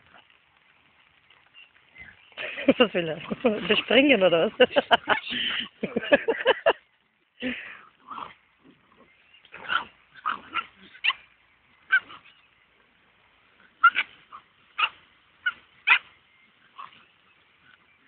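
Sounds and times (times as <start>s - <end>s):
dogs yipping and squealing: 8.1s - 12.5s, 13.6s - 18.0s.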